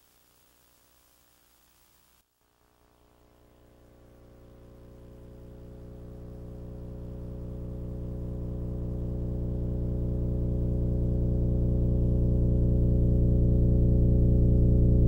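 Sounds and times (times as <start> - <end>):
faint hiss: 0.0 - 5.5.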